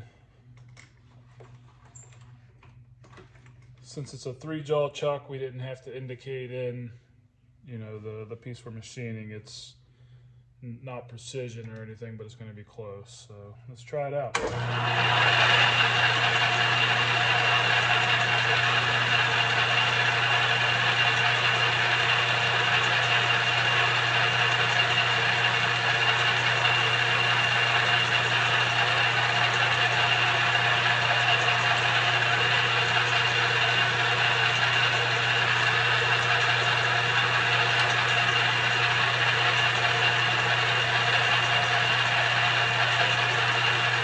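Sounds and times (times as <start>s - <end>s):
lathe motor humming: 14.4s - 44.0s.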